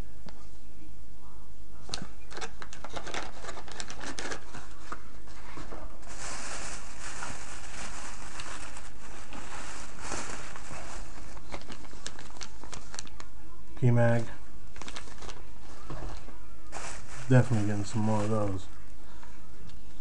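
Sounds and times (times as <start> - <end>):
plastic packaging crinkling: 2.4 - 13.4, 14.7 - 18.9.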